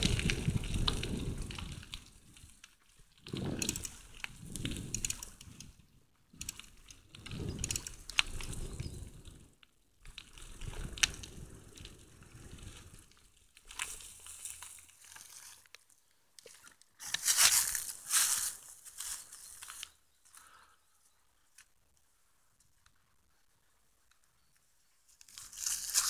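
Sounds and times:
bicycle tyres crunching on leaves: 0.0 - 5.4, 10.0 - 16.0, 17.0 - 20.5, 25.2 - 26.0
bicycle rattling clicks: 3.2 - 5.8, 6.4 - 9.2.

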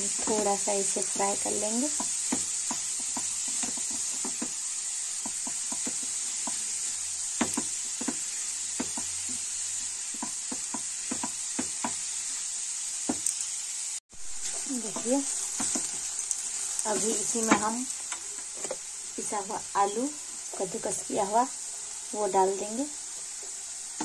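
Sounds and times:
vegetables sizzling in oil: 0.0 - 24.0
spatula scraping and tapping pan: 1.9 - 4.6, 5.2 - 6.8, 7.4 - 9.4, 10.1 - 12.1, 14.4 - 16.0.

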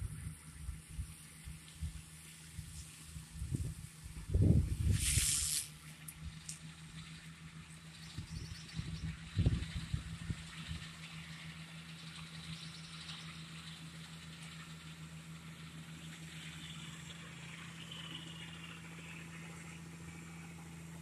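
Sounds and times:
tractor engine droning: 0.0 - 21.0
faint hiss: 4.8 - 5.8.

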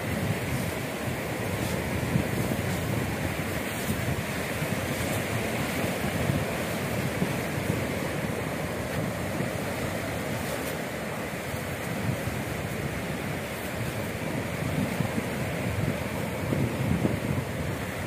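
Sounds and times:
small waves washing onto shore: 0.0 - 18.0
wind on microphone: 0.0 - 18.0.

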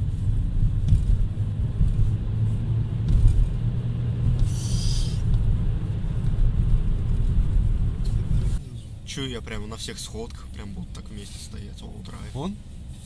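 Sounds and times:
car engine and road rumble: 0.0 - 13.0.

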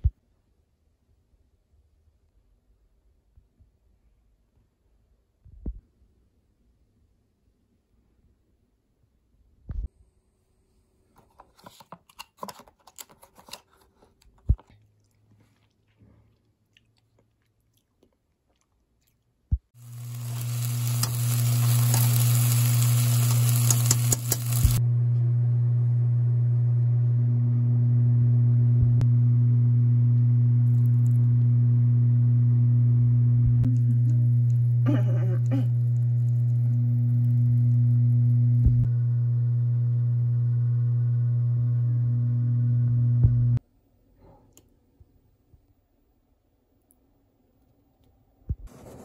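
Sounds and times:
eggs sizzling in a frying pan: 19.8 - 24.8
loud steady low hum: 20.0 - 43.6.

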